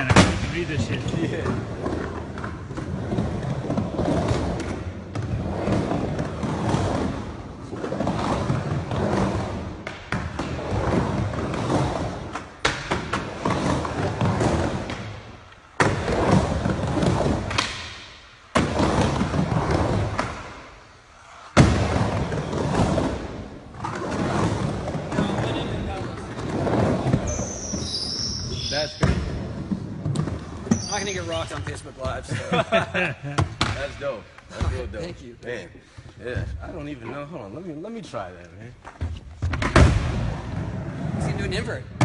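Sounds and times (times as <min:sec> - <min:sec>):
skateboard wheels rolling on ramp: 0:00.0 - 0:32.2.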